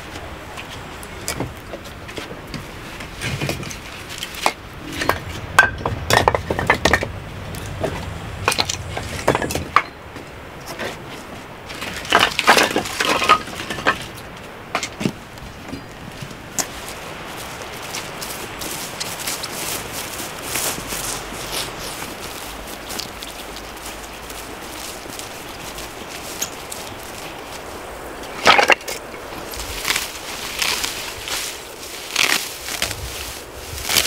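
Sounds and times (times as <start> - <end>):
firewood logs knocking together: 1.2 - 11.0, 11.7 - 16.7, 28.3 - 29.9.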